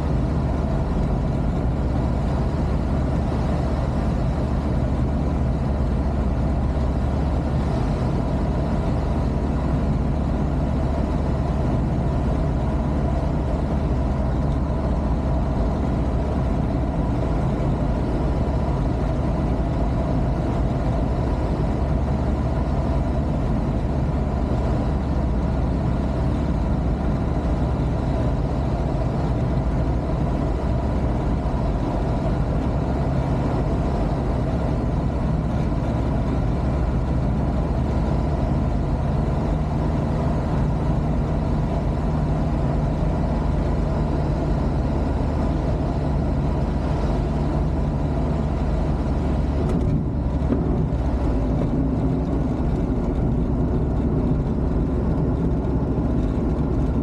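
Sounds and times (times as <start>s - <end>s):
aircraft engine running: 0.0s - 57.0s.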